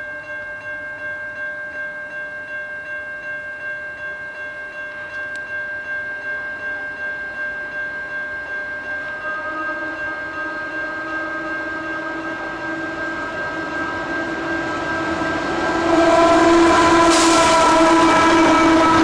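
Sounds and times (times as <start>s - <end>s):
diesel locomotive drone: 6.4s - 19.0s.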